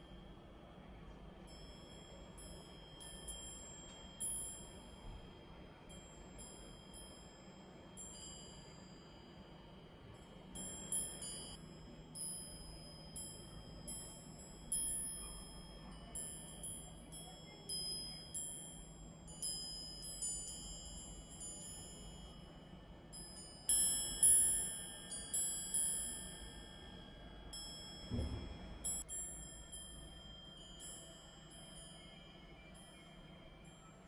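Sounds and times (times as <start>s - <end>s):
iron wind chime ringing: 0.0s - 34.0s
low thump: 28.1s - 28.8s.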